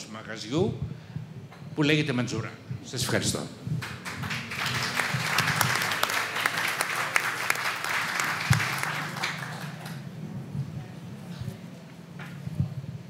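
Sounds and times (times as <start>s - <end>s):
audience applauding: 3.8s - 10.2s.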